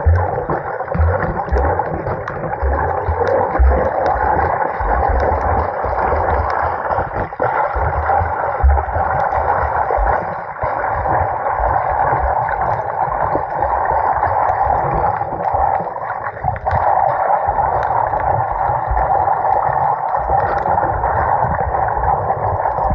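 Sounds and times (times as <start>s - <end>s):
water knocking against camera: 0.0s - 13.6s
underwater rush of sea water: 0.0s - 22.9s.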